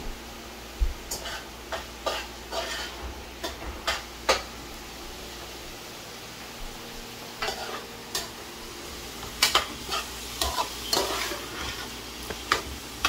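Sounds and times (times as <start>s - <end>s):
squash sizzling in a metal pot: 0.0s - 13.0s.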